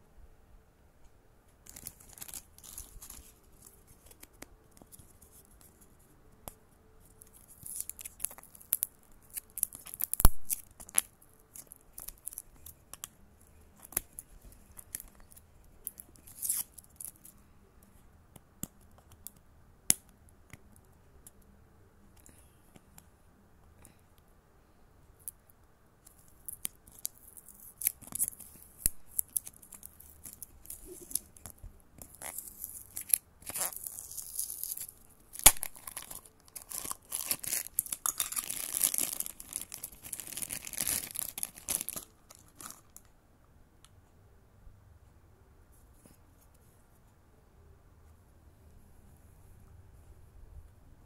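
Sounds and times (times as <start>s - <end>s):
wrapping rustling: 1.6s - 5.9s, 26.1s - 43.1s.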